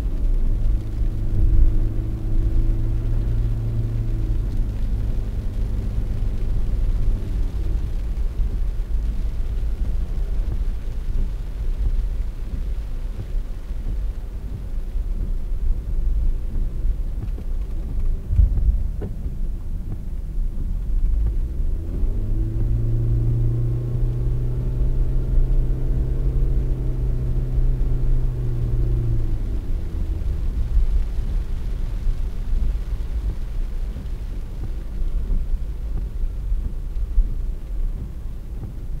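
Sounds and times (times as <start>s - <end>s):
car road rumble on wet road: 0.0s - 39.0s
thump: 18.3s - 19.2s.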